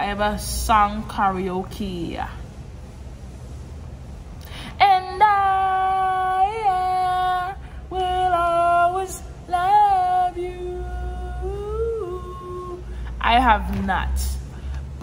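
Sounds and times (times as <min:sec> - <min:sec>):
woman singing unaccompanied: 0:04.7 - 0:14.4.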